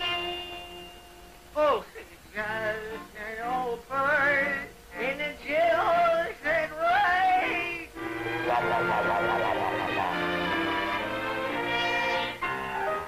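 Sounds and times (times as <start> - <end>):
music: 0.0 - 13.0
cartoon rooster singing: 2.4 - 13.0.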